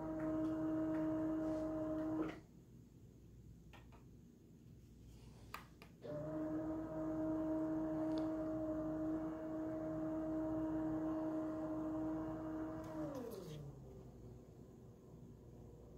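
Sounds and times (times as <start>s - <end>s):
roller motor humming: 0.0s - 2.4s, 6.1s - 14.1s.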